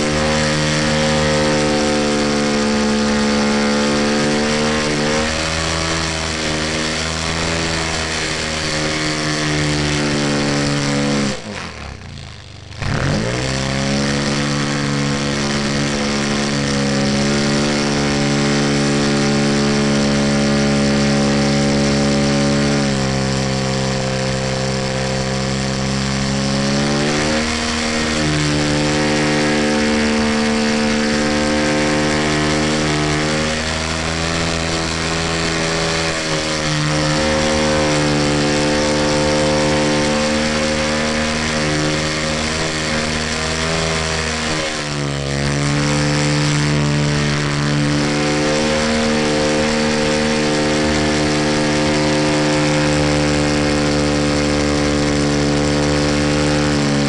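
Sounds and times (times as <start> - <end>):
model airplane engine: 0.0 - 57.0.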